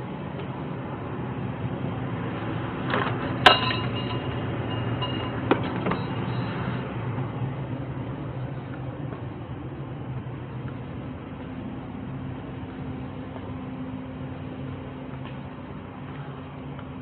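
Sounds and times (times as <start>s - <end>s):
steady low hum: 0.0s - 17.0s
sharp clink with ringing tone: 3.4s - 6.5s.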